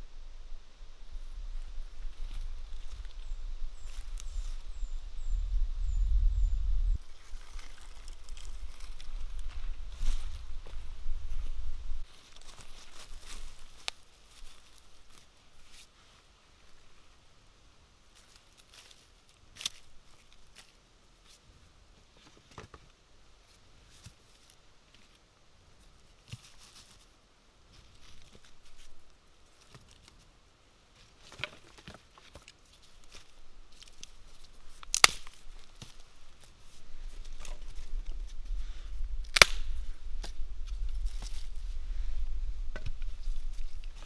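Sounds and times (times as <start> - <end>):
low rumble: 0.0 - 7.1, 8.0 - 12.0
sticks rustling and knocking: 7.0 - 15.9, 31.0 - 41.8, 42.6 - 44.0
sticks cracking: 32.3 - 36.1, 39.2 - 41.5.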